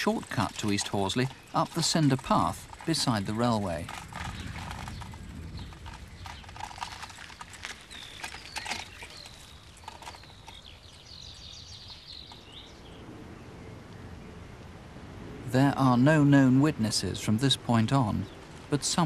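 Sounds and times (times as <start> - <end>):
light clicks and crunches: 0.0 - 11.2
birds chirping: 0.0 - 19.0.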